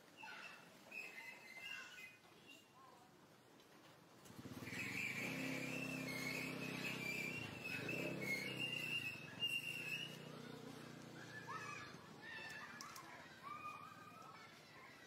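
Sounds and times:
vehicle engine running: 0:04.3 - 0:12.2
high wavering chirps: 0:04.7 - 0:12.4.

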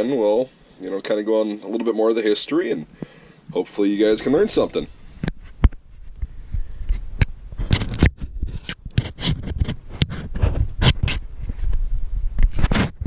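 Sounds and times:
low thumps and rumble: 0:05.1 - 0:13.0
camera handling knocks and scrapes: 0:05.2 - 0:11.7.

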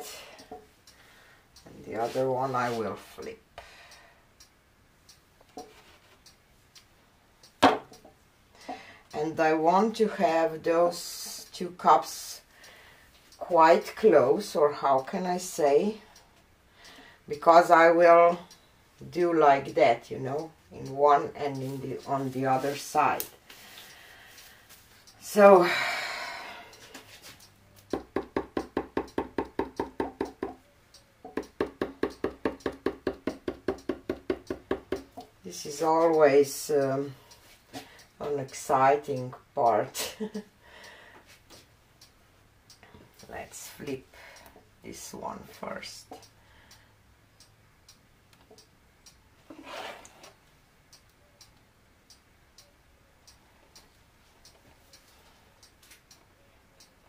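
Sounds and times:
faint regular ticking: 0:00.0 - 0:57.0
fingertips tapping plastic cups: 0:26.8 - 0:30.6, 0:31.2 - 0:35.4.

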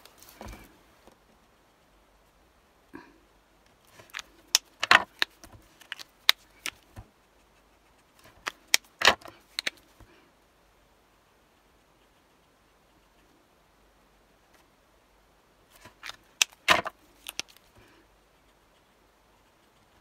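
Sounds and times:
marker caps clicking: 0:03.9 - 0:06.9, 0:08.2 - 0:09.8, 0:15.8 - 0:17.7.

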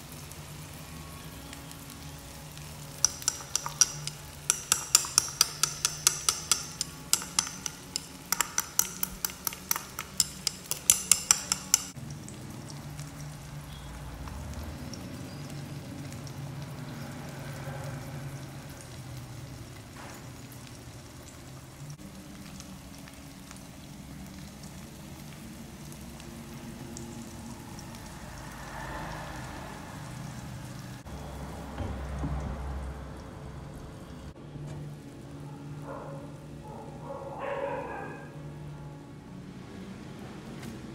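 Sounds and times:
omelette crackling and sizzling: 0:00.0 - 0:31.1
glass lid knocking on pan: 0:03.0 - 0:11.9.

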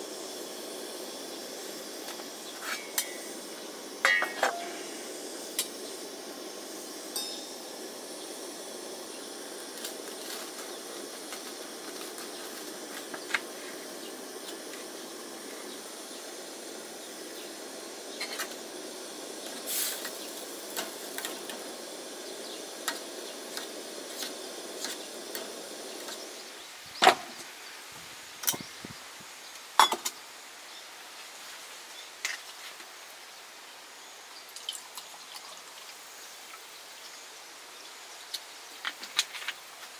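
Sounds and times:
food sizzling in a pan: 0:00.0 - 0:39.9
cookware clinking: 0:04.0 - 0:04.8, 0:07.2 - 0:07.6, 0:29.8 - 0:30.1.

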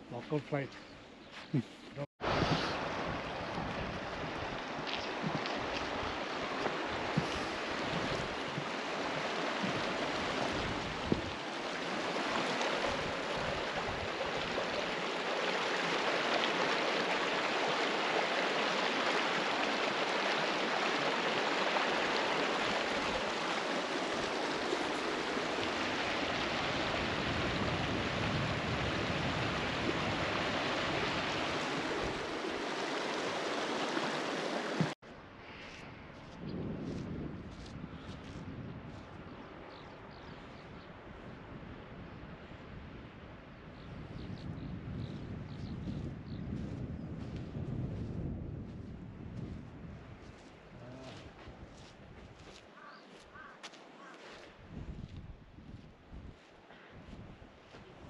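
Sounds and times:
stream rushing over stones: 0:02.2 - 0:35.0.

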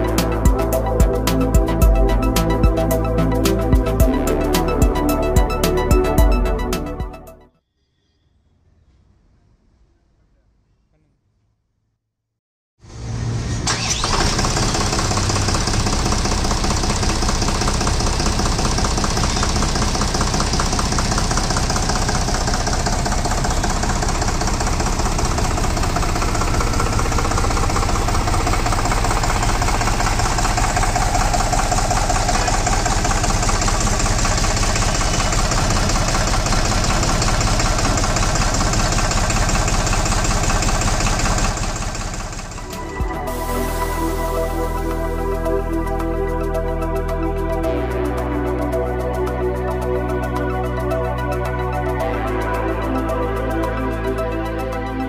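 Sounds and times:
tractor diesel engine clattering: 0:13.7 - 0:46.0.

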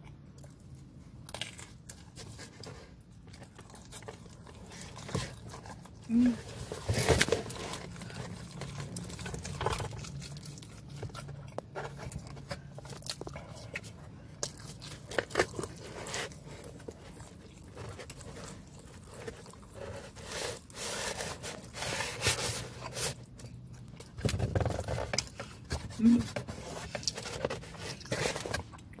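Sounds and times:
low steady hum: 0:00.0 - 0:29.0
person chewing food: 0:00.0 - 0:29.0.

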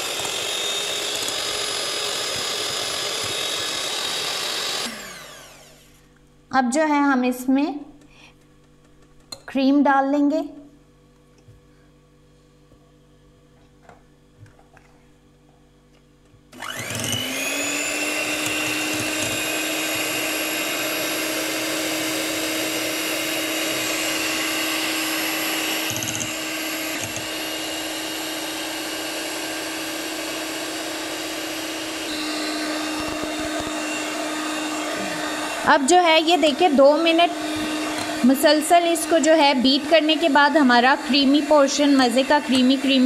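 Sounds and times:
electric hand mixer running: 0:00.0 - 0:06.1, 0:16.5 - 0:43.0.

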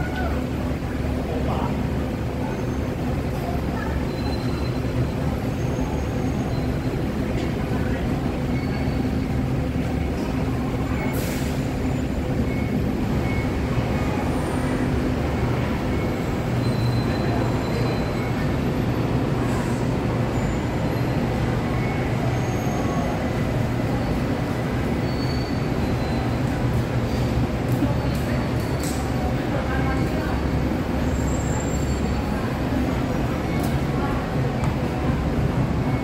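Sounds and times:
city traffic rumble: 0:00.0 - 0:36.0.

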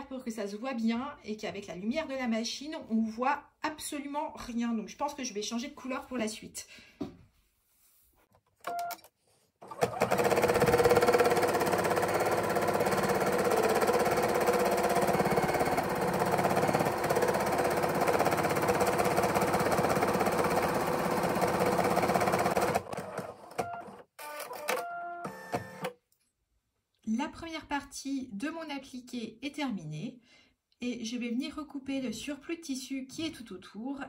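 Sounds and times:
embroidery machine stitching: 0:09.6 - 0:24.7.

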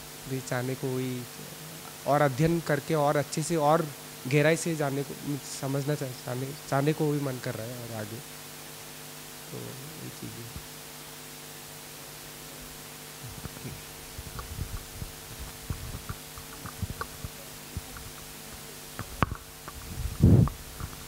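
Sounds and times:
electrical hum: 0:00.0 - 0:21.0
microphone handling knocks: 0:13.2 - 0:18.2.

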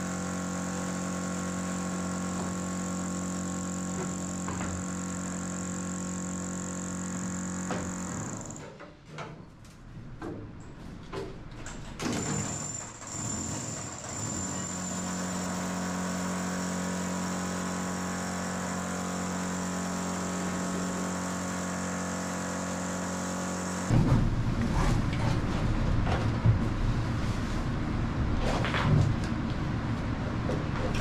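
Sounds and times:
steady mechanical hum: 0:23.9 - 0:31.0.

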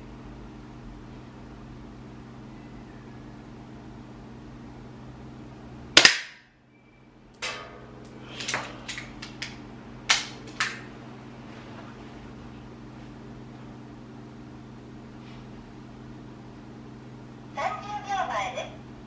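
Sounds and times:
pistol firing crack: 0:06.0 - 0:06.4.

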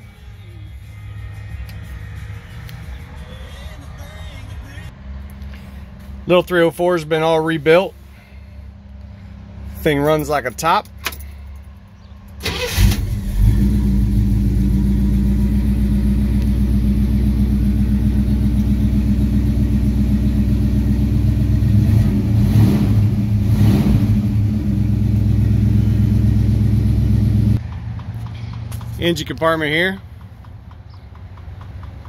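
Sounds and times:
engine cranking and idling: 0:09.9 - 0:32.0.

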